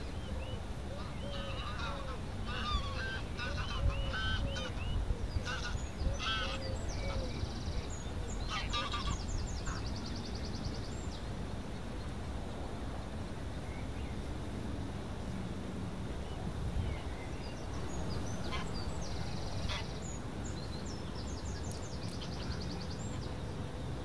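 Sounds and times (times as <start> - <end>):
low rumble of wind: 0.0 - 24.0
geese honking: 1.0 - 4.8, 5.4 - 6.6, 8.5 - 9.8, 19.6 - 19.9.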